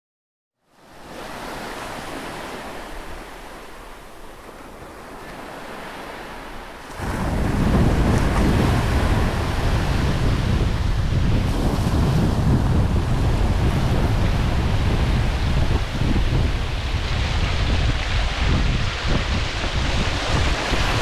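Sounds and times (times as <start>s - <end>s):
steady rushing noise: 7.0s - 21.0s.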